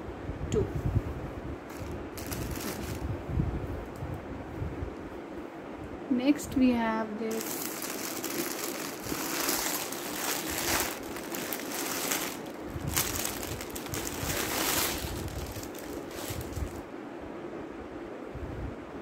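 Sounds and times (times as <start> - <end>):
fabric and packaging crinkling: 1.7 - 3.1, 7.3 - 16.8.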